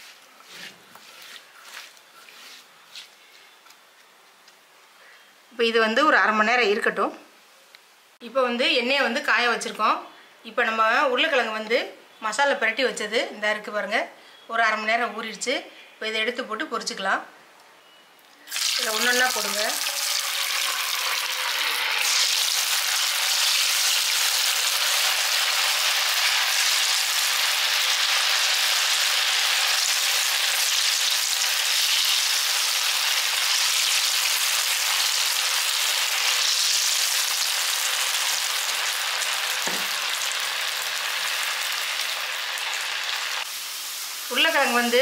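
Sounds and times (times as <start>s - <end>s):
potatoes deep-frying in oil: 18.4s - 45.0s.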